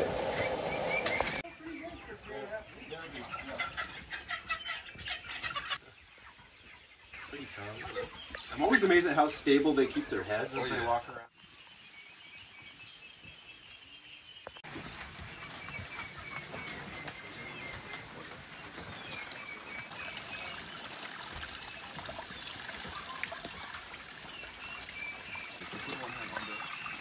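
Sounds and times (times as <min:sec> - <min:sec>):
birds chirping: 0:00.0 - 0:27.0
trickling water: 0:16.8 - 0:27.0.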